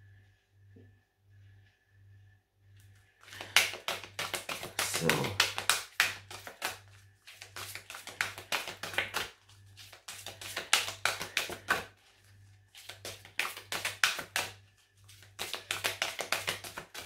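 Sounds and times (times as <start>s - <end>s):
low steady hum: 0.0s - 15.4s
cards being shuffled: 3.2s - 11.9s, 12.7s - 17.0s.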